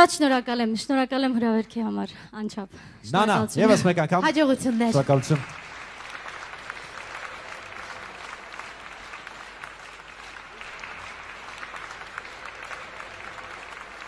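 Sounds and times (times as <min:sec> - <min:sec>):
audience applauding: 0:03.8 - 0:14.0.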